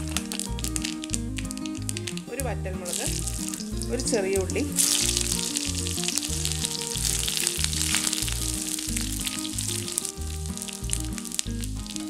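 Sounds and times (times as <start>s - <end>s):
background music with bass pulse: 0.0s - 12.0s
crackles: 0.0s - 12.0s
spices sizzling in hot oil: 2.9s - 4.0s, 4.6s - 12.0s.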